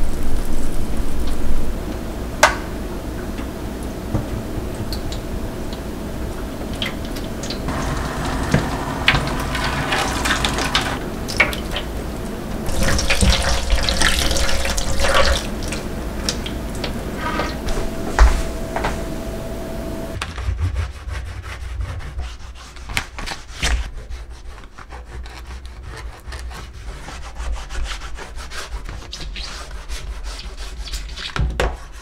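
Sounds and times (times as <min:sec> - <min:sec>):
water splashing on steel sink: 0:06.7 - 0:12.0, 0:12.6 - 0:16.9.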